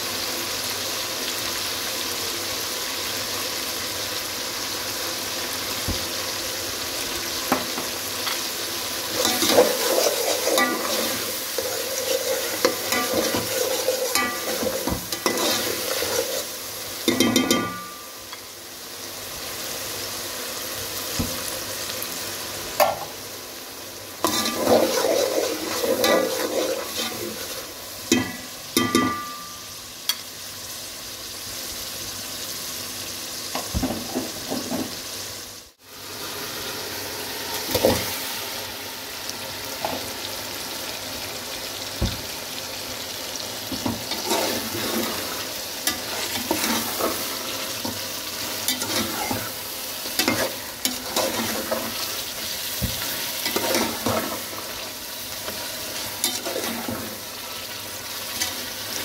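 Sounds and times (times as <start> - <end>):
food sizzling in hot oil: 0.0 - 59.0
stirring scraping against pot: 9.1 - 17.9, 24.2 - 28.3, 43.7 - 52.2.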